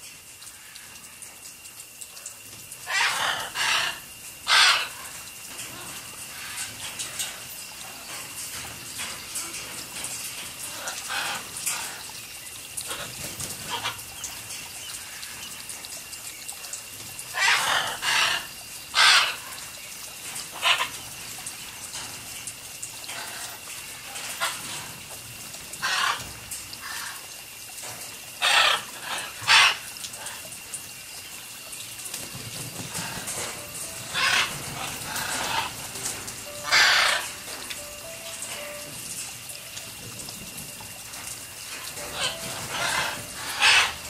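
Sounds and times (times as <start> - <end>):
water spray hissing: 0.0 - 44.0
macaw squawking: 2.8 - 6.8, 12.8 - 14.0, 17.3 - 19.6, 20.5 - 21.0, 25.8 - 27.2, 28.4 - 29.9, 33.0 - 38.8, 41.8 - 44.0.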